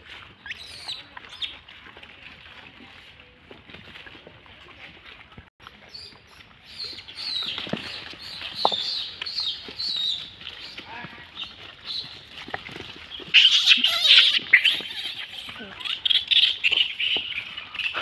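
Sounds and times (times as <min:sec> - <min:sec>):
monkeys squealing and chirping: 0:00.4 - 0:01.6, 0:13.2 - 0:18.0
monkeys screeching: 0:13.3 - 0:18.0.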